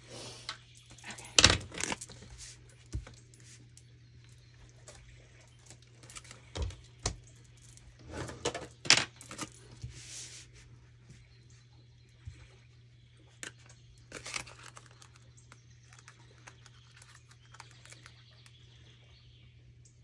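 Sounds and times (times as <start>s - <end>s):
plastic and paper rustling: 13.4s - 18.5s.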